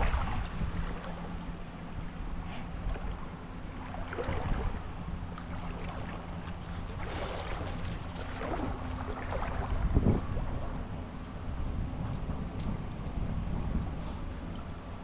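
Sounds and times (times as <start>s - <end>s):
creek water sloshing: 0.0s - 11.1s
wind rumble on microphone: 0.0s - 15.0s.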